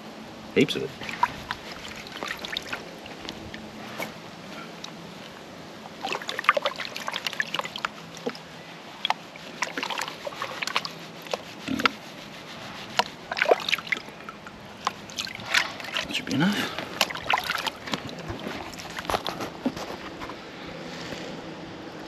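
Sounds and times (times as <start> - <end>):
water sloshing in a pan: 0.6 - 4.0, 4.6 - 20.1
water dripping: 1.0 - 3.6, 5.8 - 11.9, 13.0 - 19.1.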